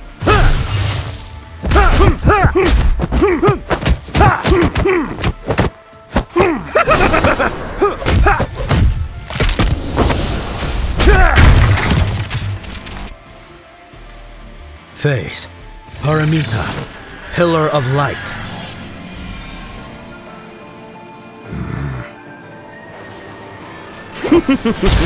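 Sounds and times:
background music: 0:00.0 - 0:25.0.

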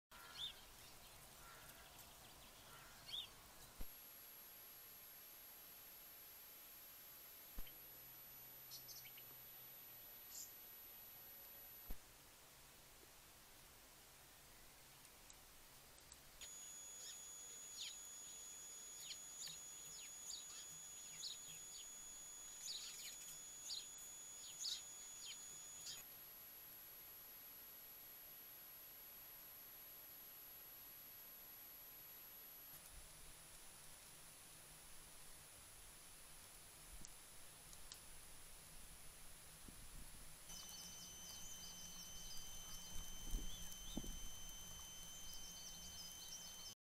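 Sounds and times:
birds chirping: 0:00.1 - 0:03.8, 0:16.1 - 0:26.0, 0:40.5 - 0:46.8
outdoor hiss: 0:00.2 - 0:30.1, 0:30.7 - 0:46.8
high electronic whine: 0:16.4 - 0:26.1, 0:40.5 - 0:46.8
high thin whine: 0:40.5 - 0:46.8.

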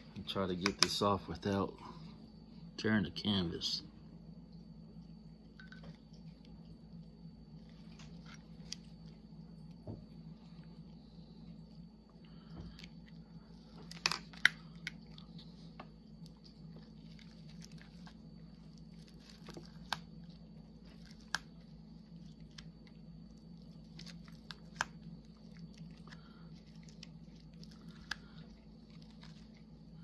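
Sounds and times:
low steady hum: 0:00.0 - 0:30.0.

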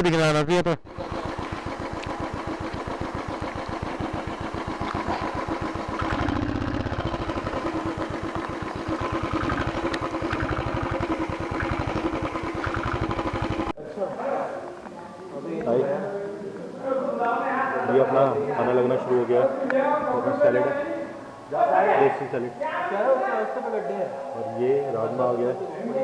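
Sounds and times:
motorcycle engine at low revs: 0:00.8 - 0:13.8.

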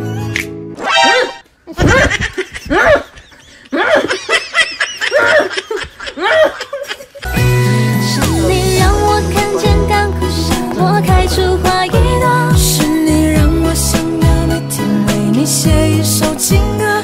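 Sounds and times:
music: 0:00.0 - 0:01.4, 0:07.2 - 0:17.0
person laughing: 0:01.1 - 0:07.3.

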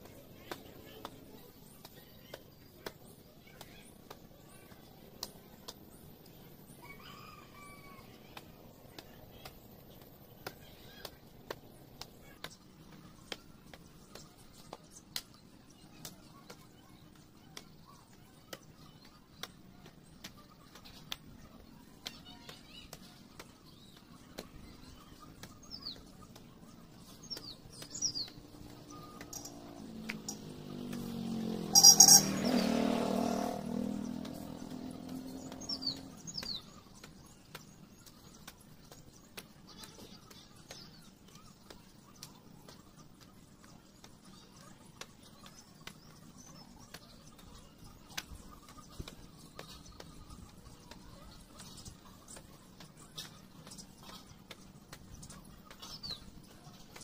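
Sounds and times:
birds chirping: 0:00.0 - 0:57.0.

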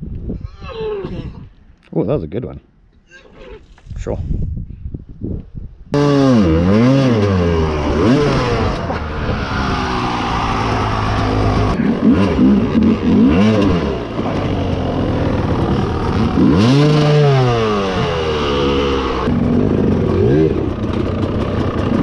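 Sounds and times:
dirt bike engine revving: 0:05.9 - 0:22.0.

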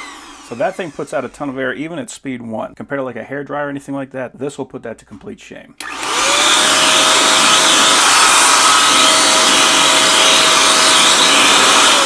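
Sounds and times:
blower motor whine: 0:00.0 - 0:01.0, 0:05.8 - 0:12.0
blower air rushing: 0:05.8 - 0:12.0.

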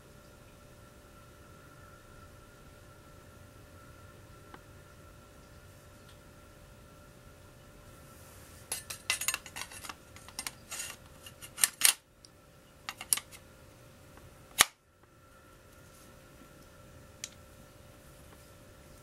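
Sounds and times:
metal parts clinking and rattling: 0:08.7 - 0:12.0, 0:12.9 - 0:13.4.

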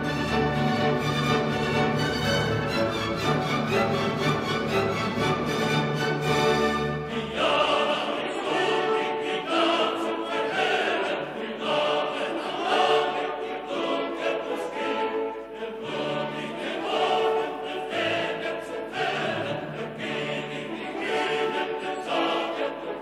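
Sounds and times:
classical choral music: 0:00.0 - 0:23.0.

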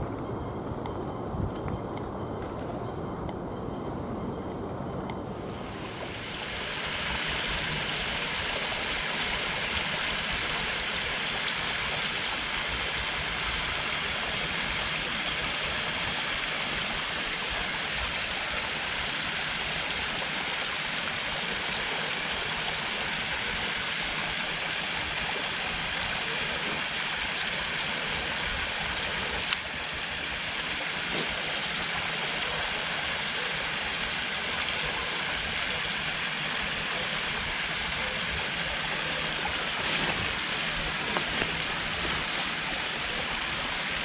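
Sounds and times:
faint bird chirps: 0:00.3 - 0:05.7
stream water rushing: 0:02.0 - 0:44.0.

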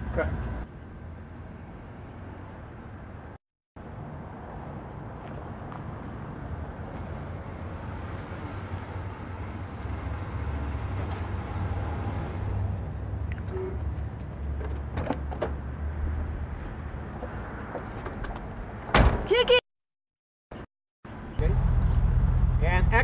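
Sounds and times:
car engine rumbling: 0:07.1 - 0:19.0.

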